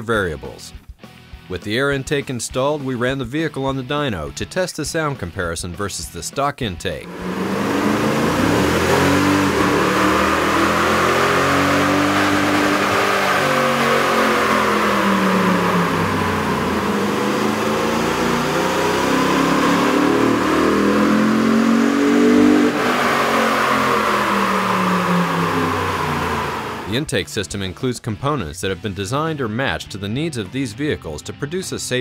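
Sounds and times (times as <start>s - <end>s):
truck engine revving under load: 7.1s - 27.1s.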